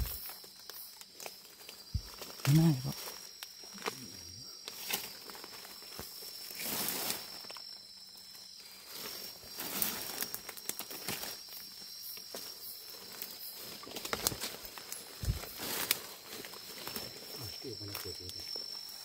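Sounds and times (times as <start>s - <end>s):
insect trill: 0.0s - 19.0s
undergrowth rustling: 0.0s - 19.0s.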